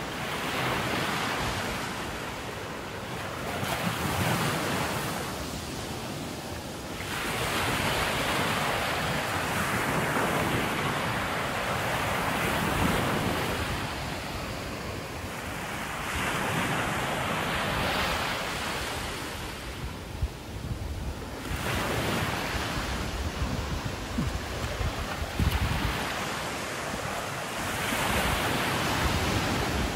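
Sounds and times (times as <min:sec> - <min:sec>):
wind buffeting microphone: 0:19.7 - 0:27.2.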